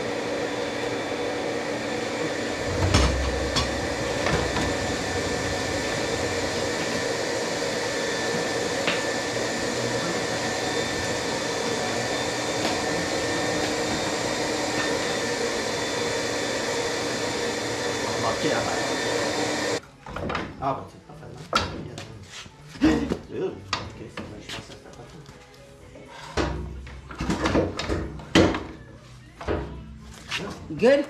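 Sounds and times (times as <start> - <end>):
machine whir: 0.7 - 19.8.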